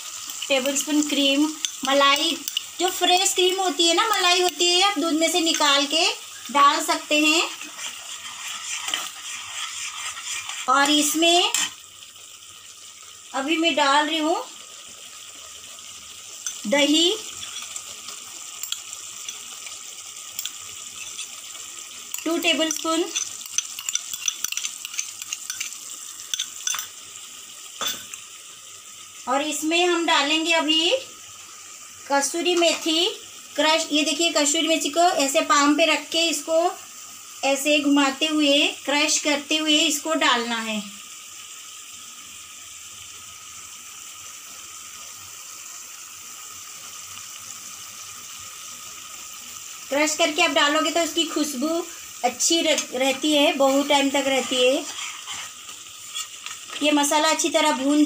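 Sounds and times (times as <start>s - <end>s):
gravy sizzling in a pan: 0.0s - 58.0s
steel spoon stirring against pan: 0.1s - 11.8s, 16.4s - 27.0s, 27.7s - 28.3s, 51.8s - 57.1s.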